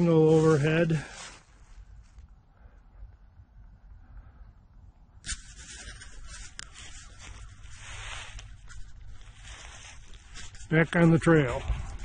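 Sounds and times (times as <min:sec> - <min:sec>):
rustling and rubbing: 0:00.0 - 0:02.2, 0:05.2 - 0:12.0.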